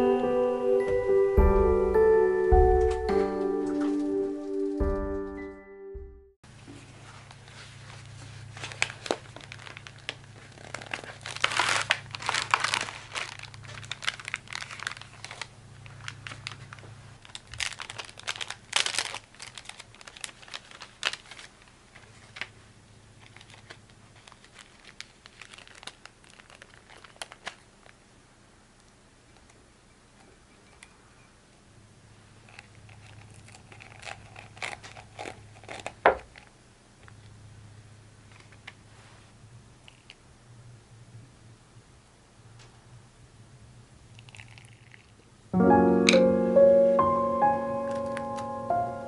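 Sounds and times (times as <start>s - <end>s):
paper crinkling and rustling: 6.8s - 28.0s, 32.5s - 36.5s.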